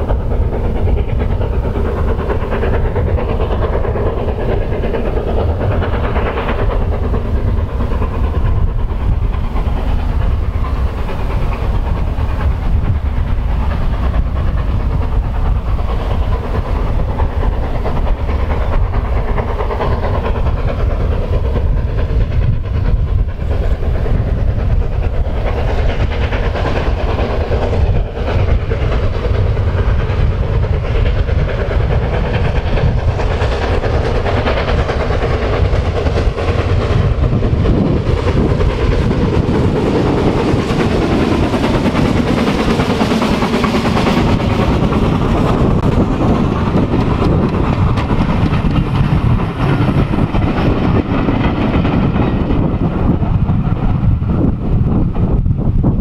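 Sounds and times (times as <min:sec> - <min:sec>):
steam locomotive passing: 0:00.0 - 0:56.0.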